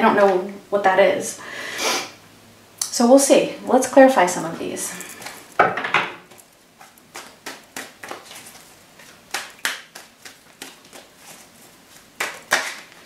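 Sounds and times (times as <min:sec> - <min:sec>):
cards snapping and tapping: 0:06.8 - 0:11.1, 0:12.2 - 0:13.0.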